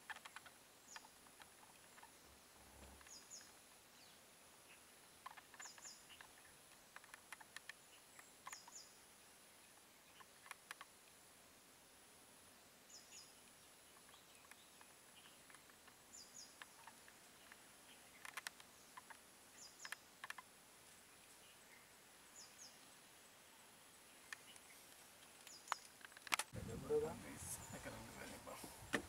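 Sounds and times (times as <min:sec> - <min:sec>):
faint ticks: 0:00.0 - 0:03.8, 0:05.2 - 0:08.9, 0:09.7 - 0:11.2, 0:13.4 - 0:20.5, 0:24.2 - 0:26.5
bird chirping: 0:00.0 - 0:10.9, 0:12.8 - 0:29.0.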